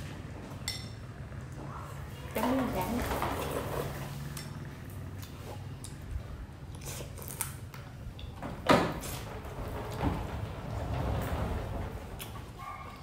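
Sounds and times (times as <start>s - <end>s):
wet chewing: 4.3s - 8.3s.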